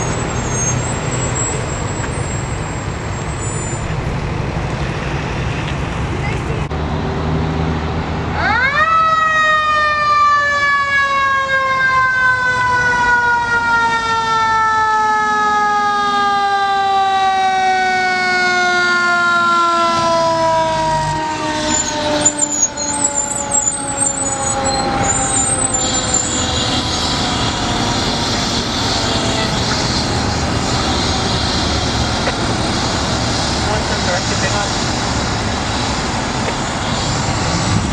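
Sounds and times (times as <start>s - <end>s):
fire engine siren wailing: 6.8s - 37.9s
truck engine running: 21.8s - 37.9s.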